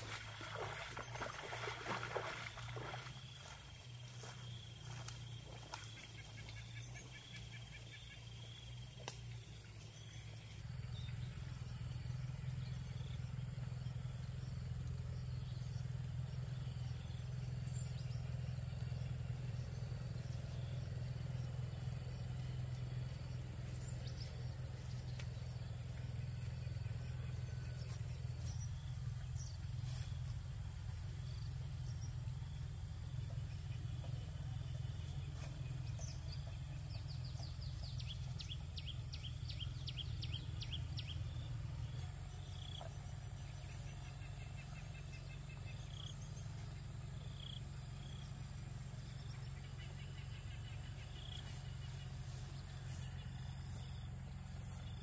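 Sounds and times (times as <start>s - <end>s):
insect drone: 0.0s - 55.0s
bird chirps: 31.0s - 55.0s.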